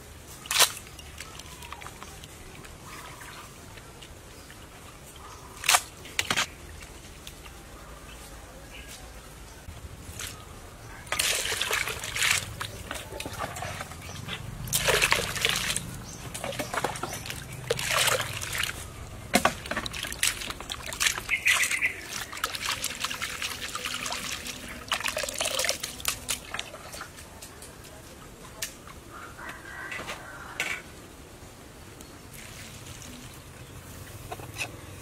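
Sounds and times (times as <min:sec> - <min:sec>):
hands sloshing in water: 0:11.1 - 0:19.0, 0:19.6 - 0:27.0.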